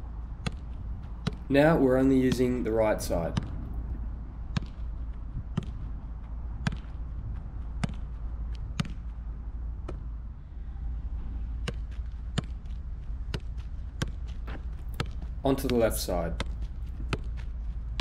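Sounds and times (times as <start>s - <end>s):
steady low rumble: 0.0s - 18.0s
football thudding on foot: 4.5s - 6.0s, 6.6s - 8.1s, 13.3s - 17.5s.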